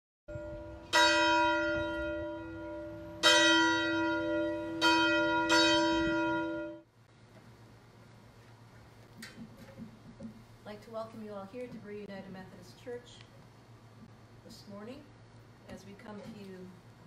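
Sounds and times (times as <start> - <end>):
church bell ringing: 0.3 - 6.8.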